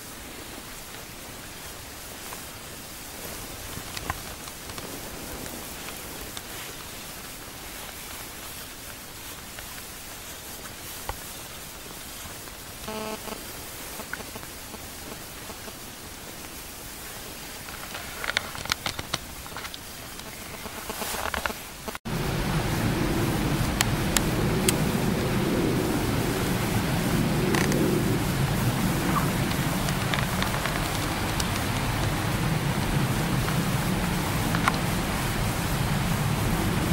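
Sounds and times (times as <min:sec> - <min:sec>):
low rumbling noise: 0:00.0 - 0:09.3, 0:11.6 - 0:36.9
steady outdoor noise: 0:00.0 - 0:36.9
sharp clicks: 0:29.1 - 0:32.2.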